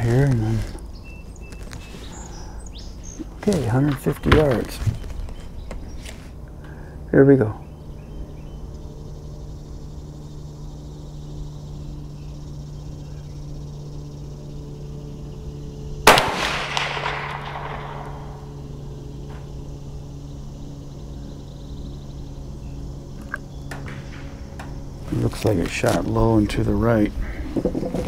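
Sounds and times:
rifle shot with echo: 0:16.0 - 0:18.6.

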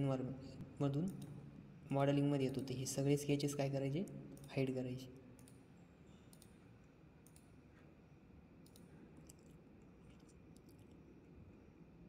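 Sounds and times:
computer mouse clicks: 0:05.4 - 0:06.6, 0:07.2 - 0:07.6, 0:08.6 - 0:11.0.

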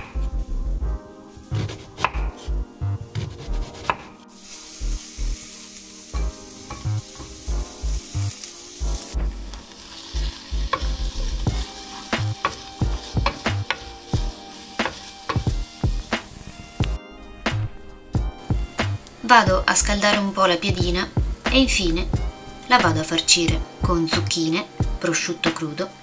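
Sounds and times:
onions sizzling in hot oil: 0:04.3 - 0:17.0.

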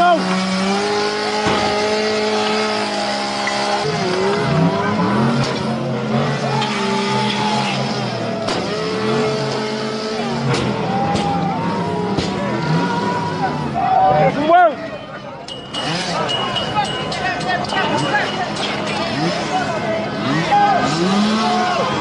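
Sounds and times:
chainsaw cutting: 0:00.0 - 0:10.8, 0:20.2 - 0:21.6.

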